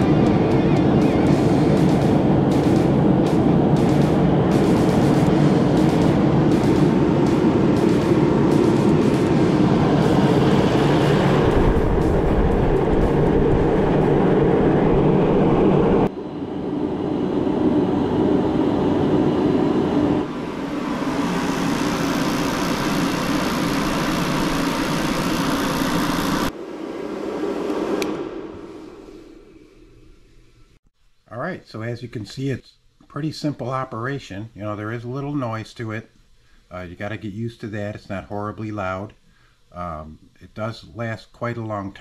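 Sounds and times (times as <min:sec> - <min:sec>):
heater fan and burner humming: 0:00.0 - 0:30.8.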